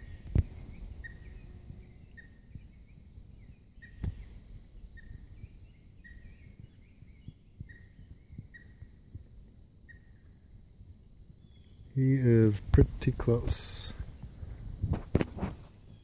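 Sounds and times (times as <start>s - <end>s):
otters chirping: 0.0s - 9.0s.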